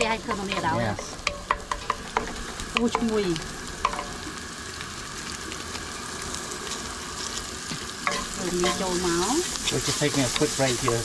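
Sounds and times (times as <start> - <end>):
shallots sizzling in oil: 0.0 - 11.0
spatula scraping a pan: 8.0 - 11.0.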